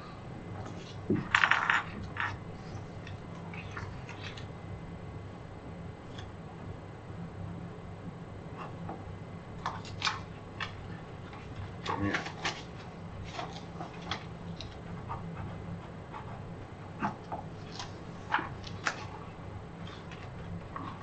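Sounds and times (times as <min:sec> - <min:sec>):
steady low hum: 0:00.0 - 0:21.0
papers rustling and clicking: 0:09.6 - 0:15.5, 0:17.0 - 0:21.0.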